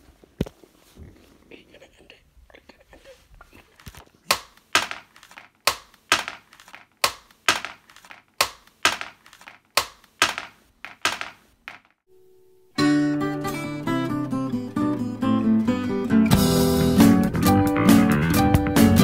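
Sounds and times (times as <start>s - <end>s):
sharp hard knocks: 4.3s - 5.1s, 5.7s - 12.0s.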